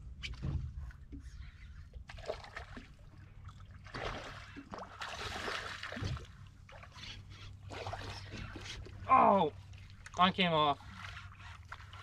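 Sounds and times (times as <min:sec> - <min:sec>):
low steady rumble: 0:00.0 - 0:12.0
fish splashing and thrashing: 0:01.7 - 0:10.1.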